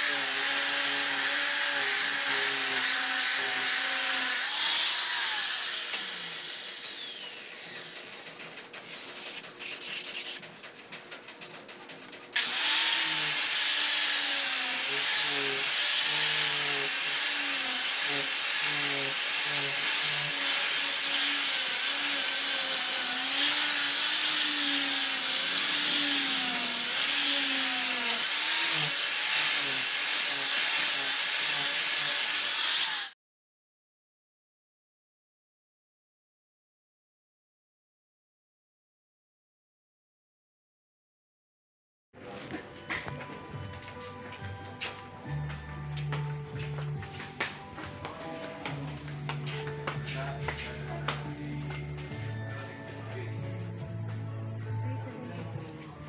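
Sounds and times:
angle grinder sanding wood: 0.0 - 8.2, 8.8 - 10.6, 12.4 - 33.2
electric palm sander on wood: 0.0 - 8.3, 12.4 - 33.2.

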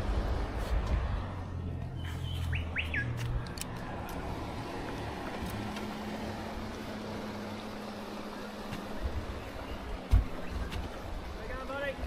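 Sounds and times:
outboard motor running: 3.7 - 12.0.

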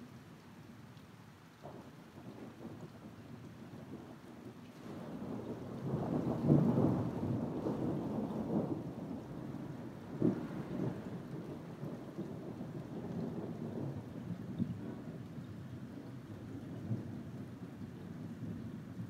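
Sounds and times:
thunder rumbling: 4.9 - 17.6.

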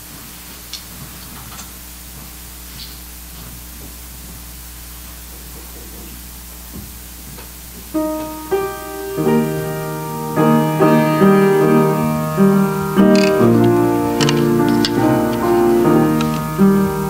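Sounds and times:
piano notes and chords: 7.9 - 17.0.

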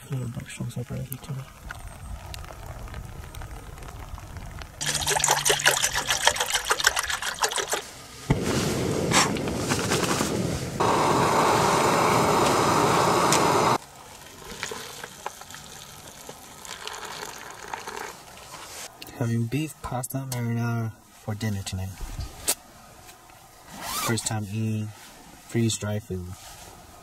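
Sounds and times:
dense crackling: 0.0 - 5.0
hot water pouring into pouch: 1.6 - 7.9, 10.8 - 18.8
camping stove hissing: 8.3 - 18.5.

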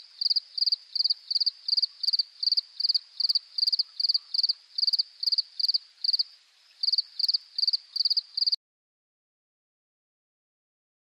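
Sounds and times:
cricket chirping: 0.0 - 8.6.

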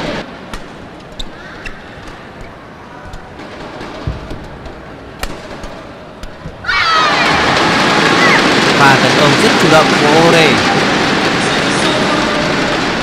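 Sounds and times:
murmur of indoor arena: 0.0 - 13.0
rackets striking shuttlecock: 0.4 - 6.7
low thump: 4.0 - 6.6.

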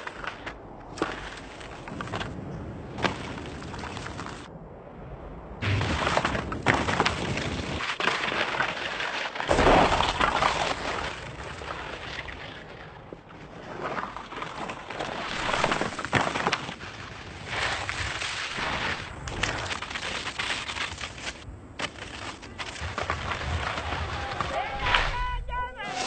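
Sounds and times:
skis scraping through sand: 0.0 - 4.5, 5.6 - 26.0.

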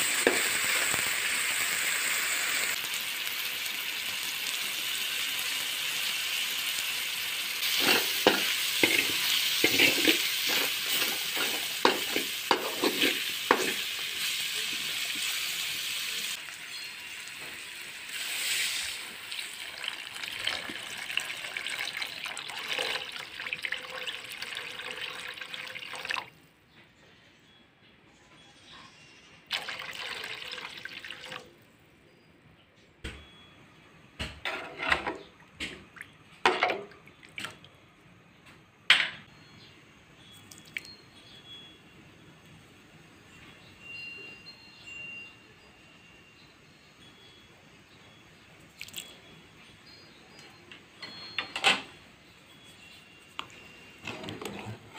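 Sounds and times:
food sizzling in a wok: 0.0 - 22.2
spatula scraping a wok: 7.6 - 16.0, 34.5 - 35.2, 54.1 - 54.9
liquid splashing pour: 29.5 - 31.5.

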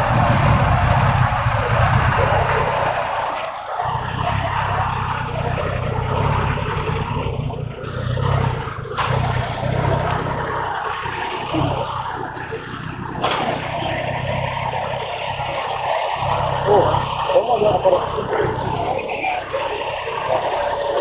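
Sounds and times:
motorcycle engine idling: 0.0 - 21.0.

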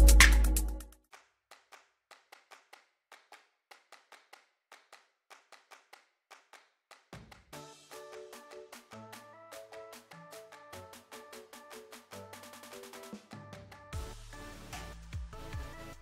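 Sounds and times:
electronic music with heavy bass: 0.0 - 0.8, 14.0 - 16.0.

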